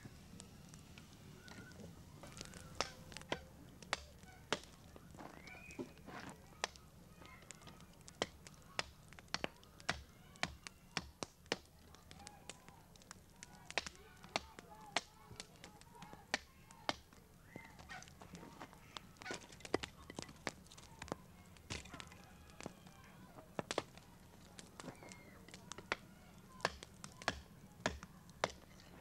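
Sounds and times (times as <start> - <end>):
bar knocking and cracking ore: 18.6 - 22.7, 23.4 - 29.0.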